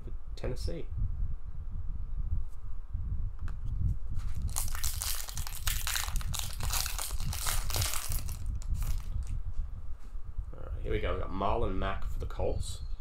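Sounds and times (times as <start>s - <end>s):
foil wrapper crinkling and tearing: 4.3s - 9.3s.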